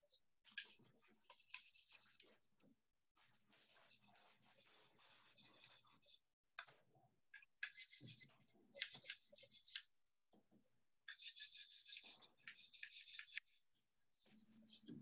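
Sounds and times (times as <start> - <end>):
paintbrush strokes on wood: 0.5 - 2.6, 3.2 - 6.8, 7.6 - 9.9, 11.1 - 13.6, 14.2 - 15.0.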